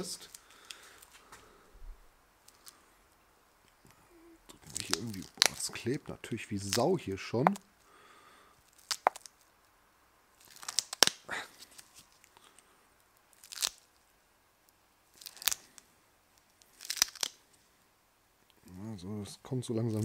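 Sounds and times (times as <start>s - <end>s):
sticky plug crackling and tearing: 2.4s - 2.8s, 3.6s - 7.7s, 8.6s - 9.5s, 10.4s - 14.0s, 15.1s - 17.6s.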